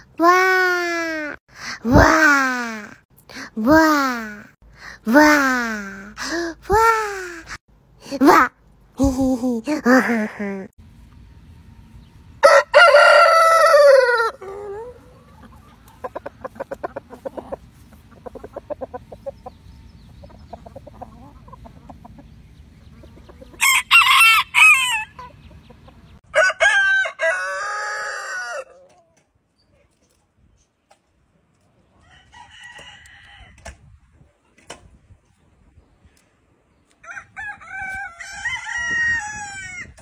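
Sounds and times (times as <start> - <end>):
roosters crowing: 12.4 - 19.2, 23.4 - 25.4, 26.2 - 29.0, 32.0 - 33.7, 37.0 - 40.0.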